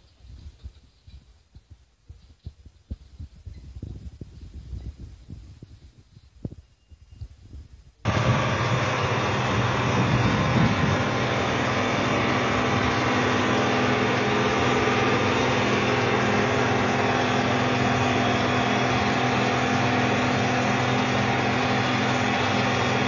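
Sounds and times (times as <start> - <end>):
diesel engine running: 8.0 - 23.0.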